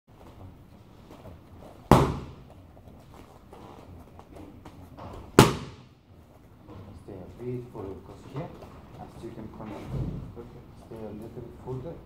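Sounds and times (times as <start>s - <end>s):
glove punch smacking mitt: 1.9s - 2.5s, 5.3s - 5.9s.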